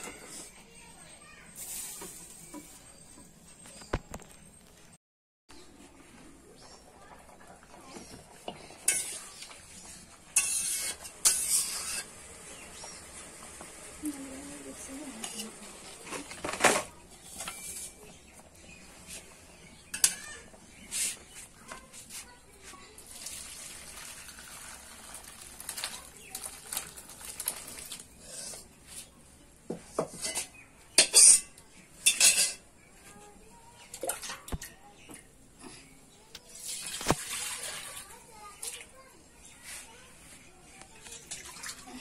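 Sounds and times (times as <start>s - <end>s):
metal cookware clattering: 8.4s - 9.4s, 10.3s - 12.9s, 19.8s - 20.5s, 30.0s - 32.7s.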